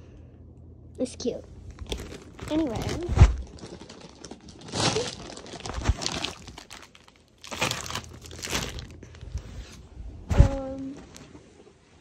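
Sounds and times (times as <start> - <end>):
plastic packaging crinkling: 1.7 - 9.5.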